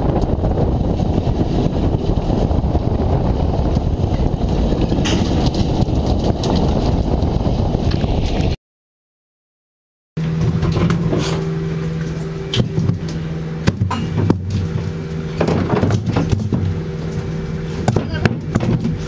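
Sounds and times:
boat engine hum: 0:00.0 - 0:08.6, 0:10.2 - 0:19.0
knocks and thuds of fish: 0:12.5 - 0:19.0.

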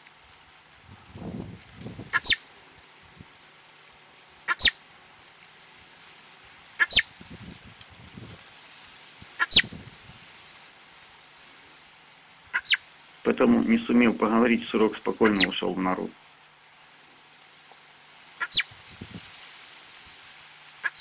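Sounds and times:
marmot whistled calls: 0:02.2 - 0:02.5, 0:04.5 - 0:04.8, 0:06.8 - 0:07.2, 0:09.4 - 0:09.8, 0:12.6 - 0:12.8, 0:15.2 - 0:15.6, 0:18.4 - 0:18.8.

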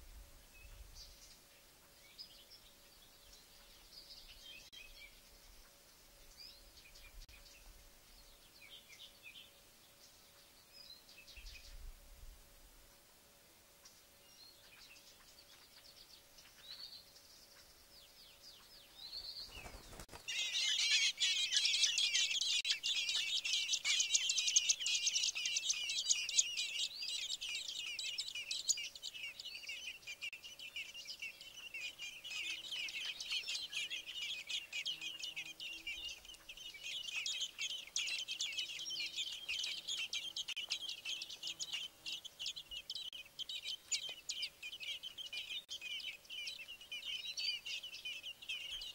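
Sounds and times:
nestlings chirping: 0:19.1 - 0:48.9.

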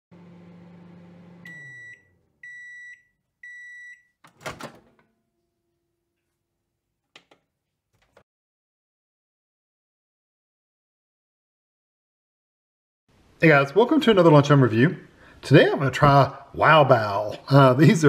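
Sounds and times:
microwave hum: 0:00.1 - 0:08.2
microwave beeps: 0:00.6 - 0:04.2
microwave door clunk: 0:04.3 - 0:05.1.

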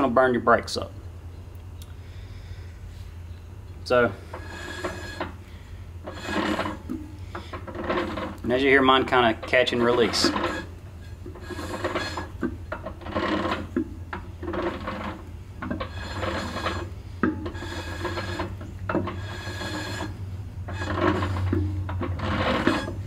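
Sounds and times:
brake shoes scratchy rubbing: 0:06.1 - 0:23.0.

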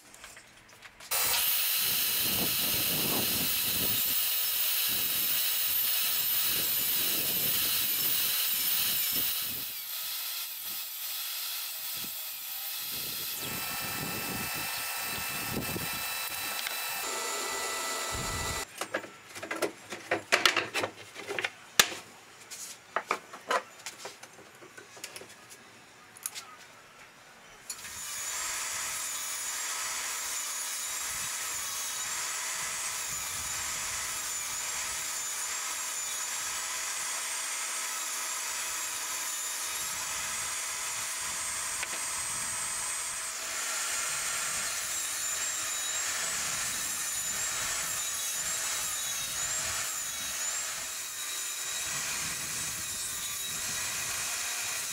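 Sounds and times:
table saw whining: 0:01.1 - 0:18.7, 0:41.7 - 0:54.9.

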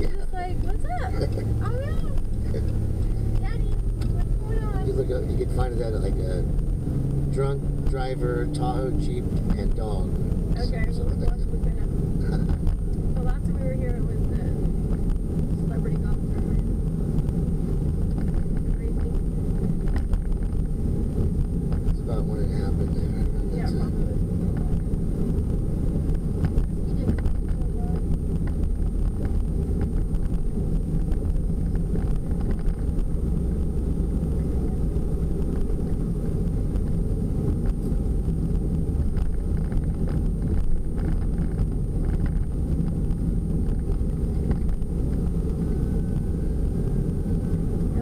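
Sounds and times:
van engine and tyre rumble: 0:00.0 - 0:48.0.

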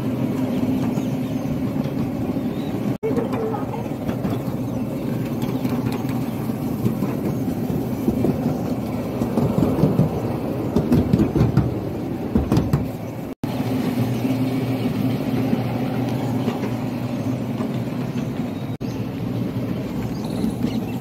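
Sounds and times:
carriages rattling: 0:00.0 - 0:21.0
park train engine hum: 0:00.0 - 0:21.0.

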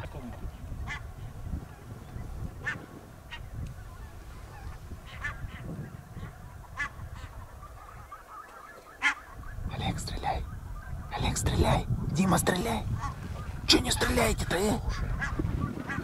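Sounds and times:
goose honking: 0:00.8 - 0:01.1, 0:02.5 - 0:09.6, 0:13.0 - 0:16.0.

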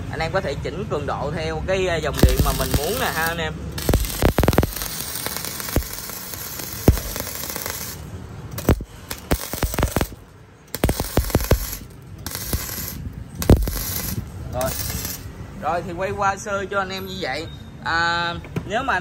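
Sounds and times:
welding arc crackling and popping: 0:02.1 - 0:15.4.

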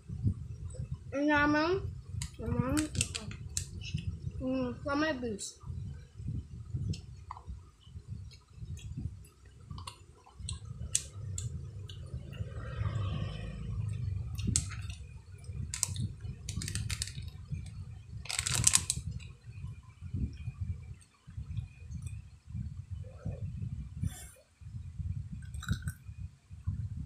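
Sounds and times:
skewer clicking in plastic cup: 0:02.8 - 0:03.7, 0:15.7 - 0:17.2
chewing: 0:09.7 - 0:10.7, 0:25.5 - 0:26.0.

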